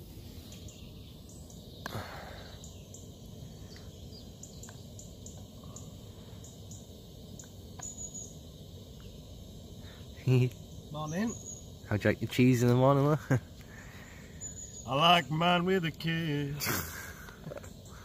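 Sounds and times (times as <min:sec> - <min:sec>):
high bird chirps: 0:02.4 - 0:08.4, 0:10.8 - 0:11.8, 0:13.8 - 0:15.4.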